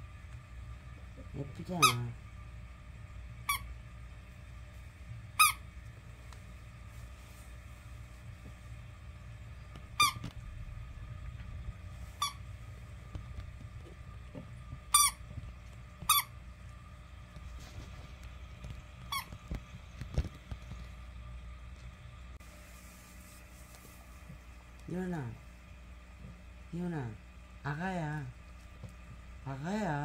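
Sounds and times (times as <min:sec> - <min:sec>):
squeaky dog toy squeaking: 0:01.8 - 0:02.1, 0:05.4 - 0:05.6, 0:10.0 - 0:10.3, 0:14.9 - 0:15.2, 0:16.1 - 0:16.3.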